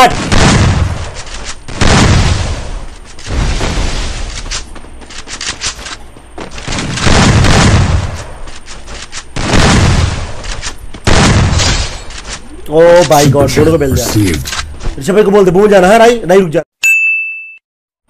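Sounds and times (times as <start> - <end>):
video game gunshots booming: 0.0 - 4.3, 6.5 - 8.4, 9.4 - 10.4, 11.0 - 12.1.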